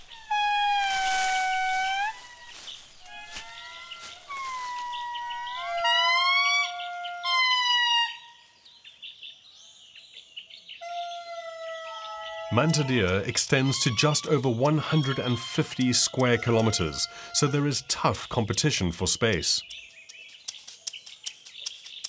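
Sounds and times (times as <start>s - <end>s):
lemurs singing long high notes: 0.0s - 8.2s, 10.8s - 18.2s.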